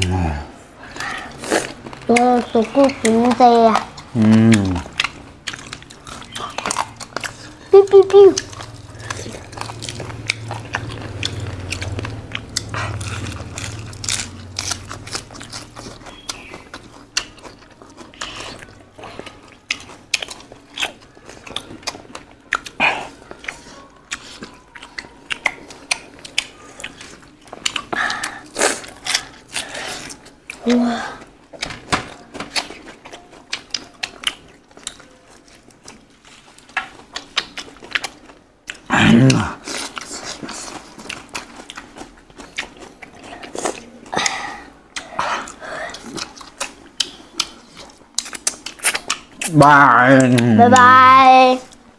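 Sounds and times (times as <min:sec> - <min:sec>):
wet chewing and lip smacking: 0:00.8 - 0:50.9
crunchy bites: 0:08.4 - 0:18.7.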